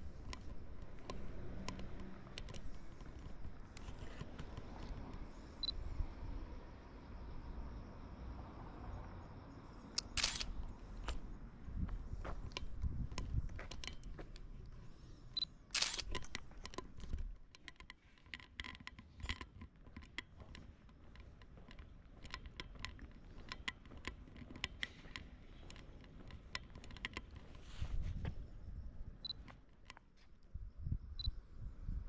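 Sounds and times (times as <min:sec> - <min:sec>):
small clicks and taps: 0:00.3 - 0:05.2, 0:12.5 - 0:14.5, 0:15.8 - 0:27.7
camera beep: 0:10.0 - 0:10.5, 0:15.4 - 0:16.2, 0:29.2 - 0:29.5
camera shutter click: 0:10.0 - 0:10.5, 0:15.8 - 0:16.3.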